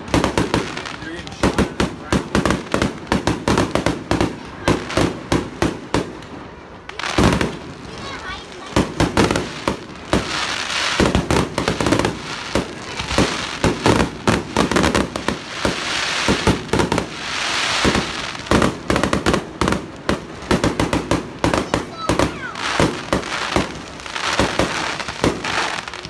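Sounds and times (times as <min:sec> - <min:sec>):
fireworks bangs and pops: 0:00.0 - 0:26.0
crackling hissing sparkle: 0:06.8 - 0:26.0.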